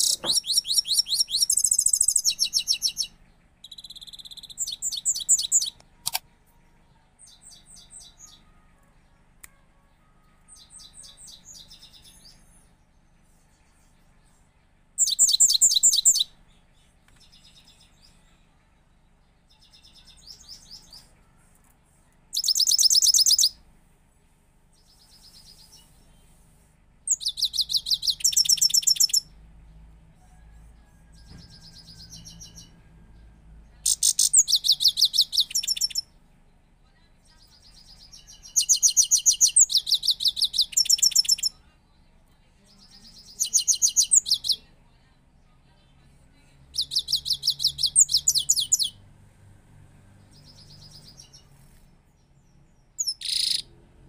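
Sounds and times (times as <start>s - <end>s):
goldfinch singing high trills: 0.0s - 5.7s.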